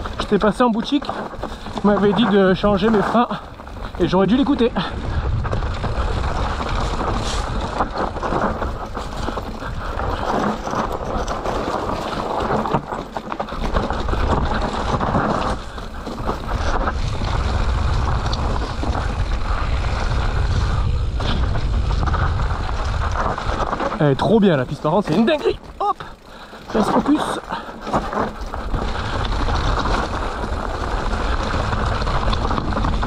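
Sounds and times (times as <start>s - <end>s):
bike rattling over rough trail: 0.0s - 33.0s
wind rushing over microphone: 1.3s - 12.7s, 13.6s - 24.0s.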